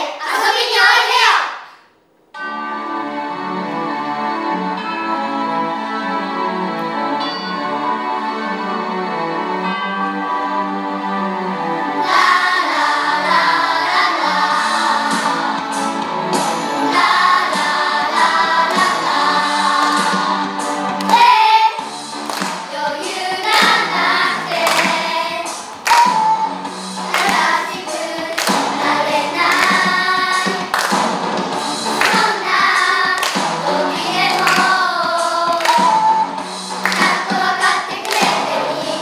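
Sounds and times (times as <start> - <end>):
instrumental accompaniment: 2.4 - 39.0
children singing: 11.9 - 21.9, 22.6 - 39.0.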